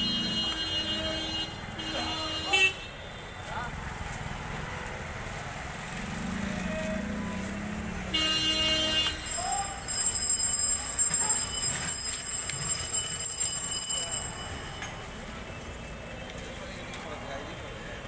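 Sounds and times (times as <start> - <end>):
vehicle horn toot: 0.0 - 3.4, 8.1 - 9.5
traffic: 0.0 - 18.0.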